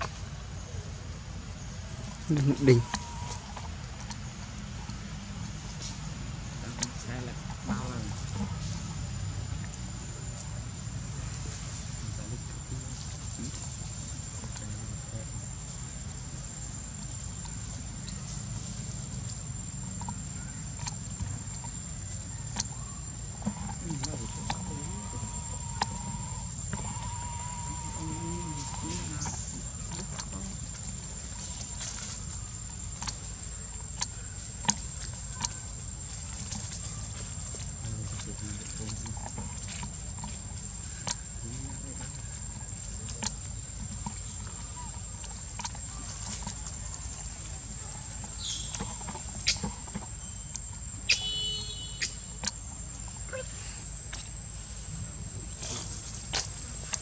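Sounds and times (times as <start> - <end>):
thin high whine: 0.0 - 57.0.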